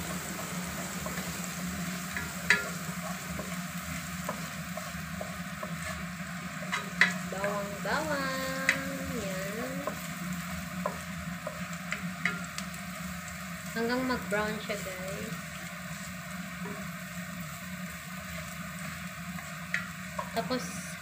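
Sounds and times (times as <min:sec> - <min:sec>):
garlic sizzling in oil: 0:00.0 - 0:21.0
spatula tapping pan: 0:02.1 - 0:12.9, 0:18.8 - 0:20.4.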